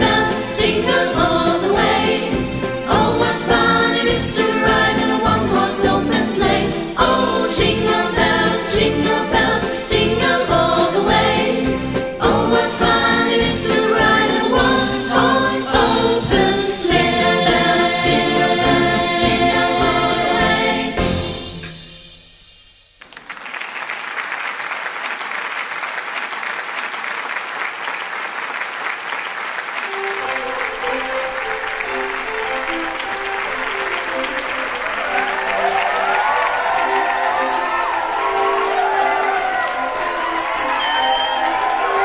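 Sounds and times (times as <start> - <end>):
group singing upbeat song with band: 0.0 - 21.5
applause: 23.0 - 42.0
soft melody: 29.9 - 42.0.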